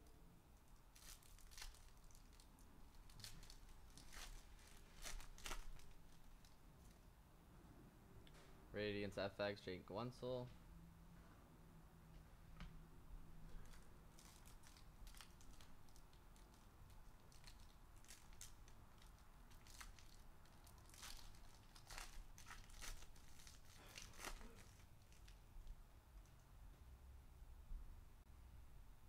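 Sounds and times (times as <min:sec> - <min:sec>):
foil pack crinkling and tearing: 0:00.9 - 0:06.6, 0:13.6 - 0:25.4.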